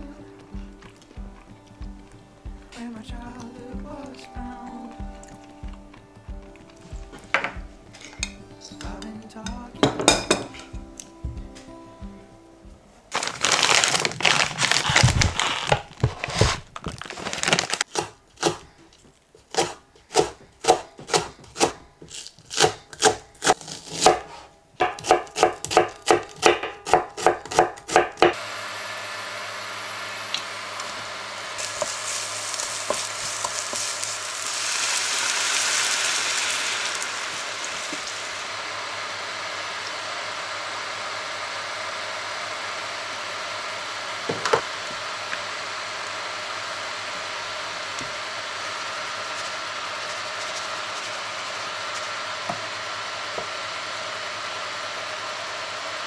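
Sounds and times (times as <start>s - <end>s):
knife chopping on wooden board: 19.5s - 21.8s, 22.5s - 28.4s
sauce simmering in a frying pan: 28.3s - 56.0s.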